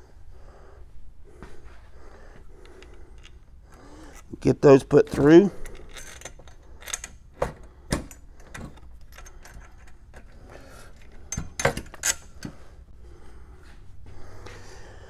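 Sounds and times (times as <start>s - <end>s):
small metal screws clinking: 5.6s - 7.2s, 8.1s - 12.4s.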